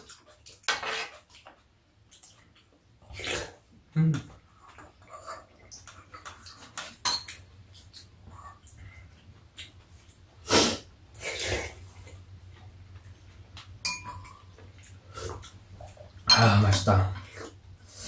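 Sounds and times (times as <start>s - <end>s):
loud noises from eaters: 0.0s - 13.3s
spoons clinking on ceramic bowls: 13.8s - 14.4s, 16.3s - 17.0s.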